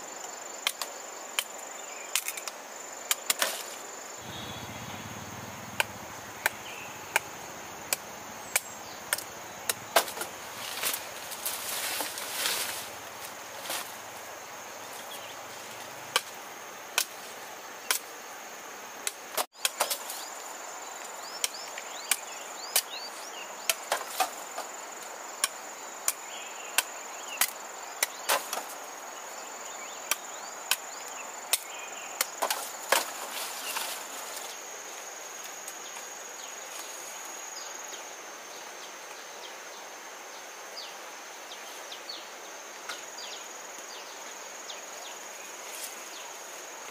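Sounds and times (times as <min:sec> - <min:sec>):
insects whining: 0:00.0 - 0:46.9
machete chopping sugarcane: 0:04.3 - 0:14.0, 0:16.0 - 0:17.2, 0:31.5 - 0:33.3.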